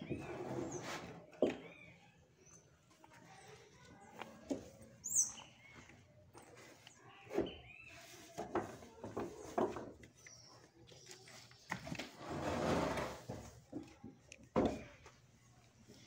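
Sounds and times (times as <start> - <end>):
bird chirping: 5.0 - 6.5.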